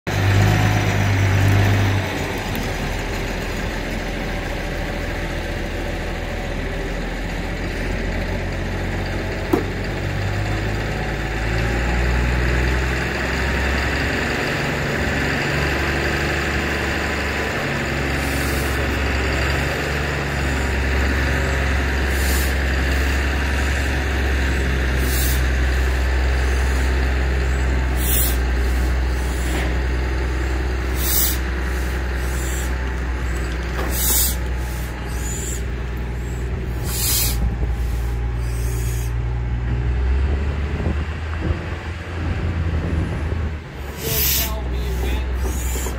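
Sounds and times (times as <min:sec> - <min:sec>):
diesel engine droning under load: 0:00.0 - 0:45.9
short hisses: 0:25.0 - 0:25.5, 0:28.0 - 0:29.6, 0:30.9 - 0:32.8, 0:33.8 - 0:35.6, 0:36.8 - 0:39.2, 0:43.9 - 0:45.9.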